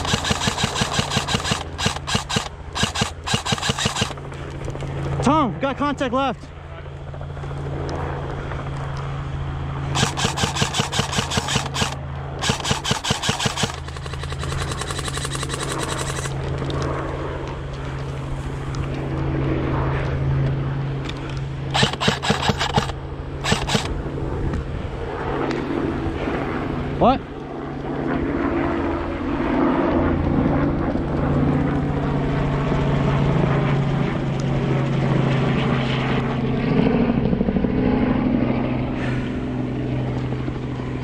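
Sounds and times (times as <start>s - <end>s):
airsoft guns firing bursts: 0.0s - 4.2s, 9.9s - 16.4s, 21.7s - 24.0s
low engine drone: 0.0s - 5.2s, 6.4s - 27.8s, 35.5s - 41.0s.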